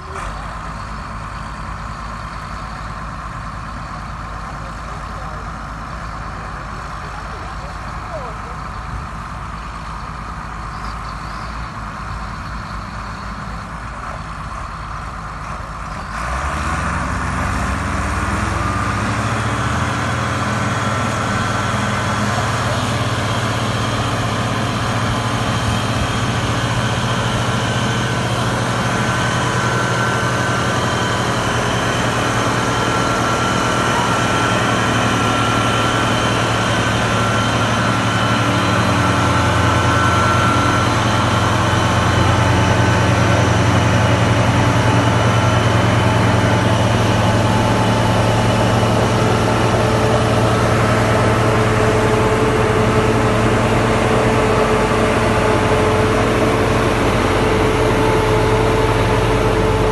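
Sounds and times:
tractor diesel engines: 0.0 - 59.9.

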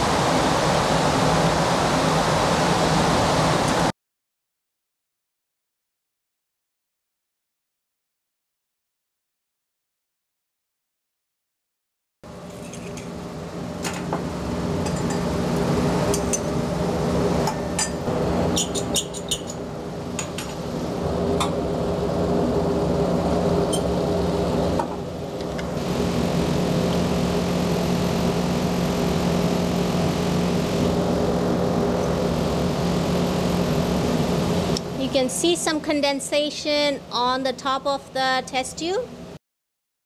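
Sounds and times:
bunsen burner rushing: 12.3 - 36.0.

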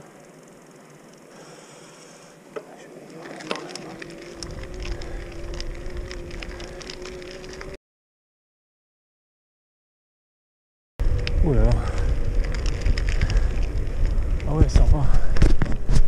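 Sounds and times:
electric bike motor whine: 0.0 - 7.8, 11.0 - 15.8
bike clicks and rattles: 3.1 - 7.8, 11.1 - 16.0
wind rumble on microphone: 4.3 - 7.8, 11.0 - 16.0.

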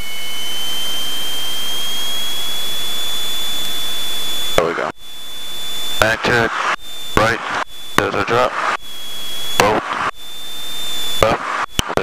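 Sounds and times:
airplane engine and propeller: 0.0 - 12.0.

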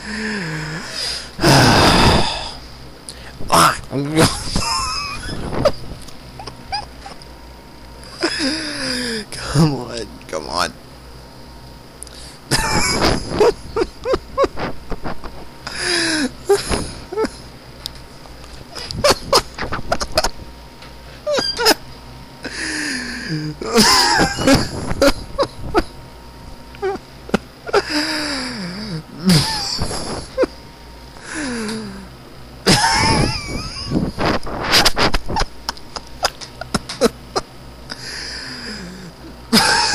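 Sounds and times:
breathy hissing laughter bursts: 4.2 - 5.8, 12.5 - 14.6, 18.7 - 20.4, 22.4 - 25.9, 26.8 - 30.6, 32.6 - 34.0, 39.5 - 39.9.

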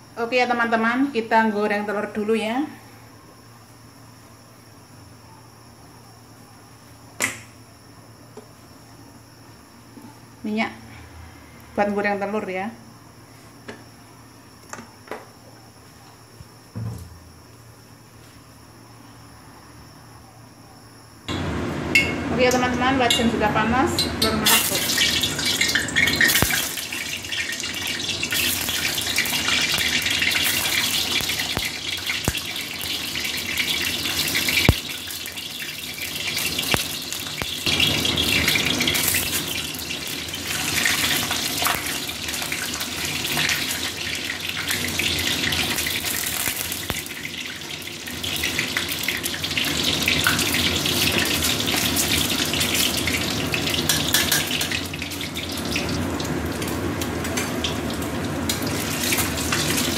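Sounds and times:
eggs sizzling in hot oil: 23.8 - 59.9.

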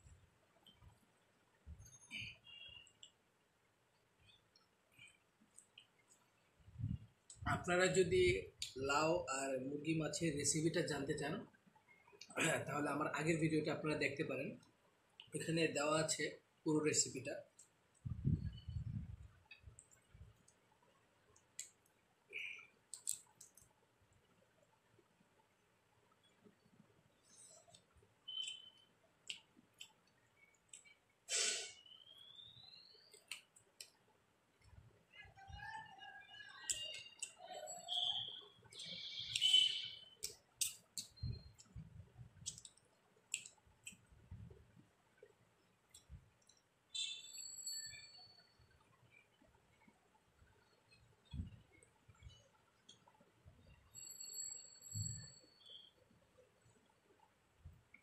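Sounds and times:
eating clicks and smacks: 21.4 - 23.7, 27.7 - 31.0, 33.1 - 34.0, 36.6 - 37.4, 40.2 - 41.8, 42.4 - 44.1
mouth clicks while chewing: 22.4 - 23.7, 40.2 - 41.8, 42.4 - 44.1.

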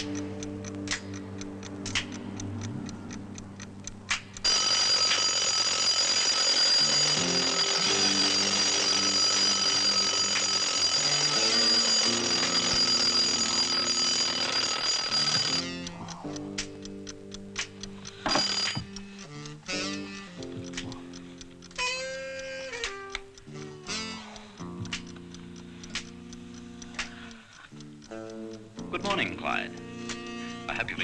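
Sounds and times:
alarm clock ticking: 0.0 - 31.0
alarm clock bell ringing: 4.4 - 16.2, 18.1 - 19.1.

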